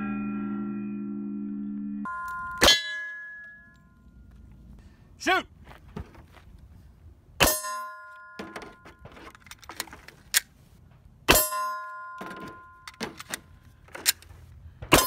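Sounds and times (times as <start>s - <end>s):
steel target ringing: 0.0s - 4.3s, 7.4s - 8.8s, 11.3s - 12.8s.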